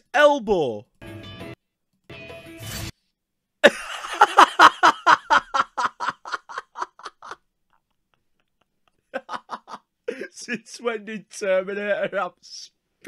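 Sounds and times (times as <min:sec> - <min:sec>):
young man laughing hard: 0:03.6 - 0:07.4, 0:08.4 - 0:10.6.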